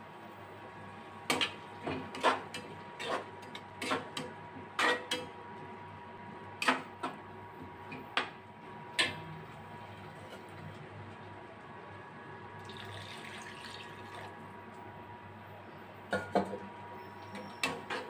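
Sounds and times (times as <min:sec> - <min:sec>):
spatula scraping metal wok: 0:02.1 - 0:04.2.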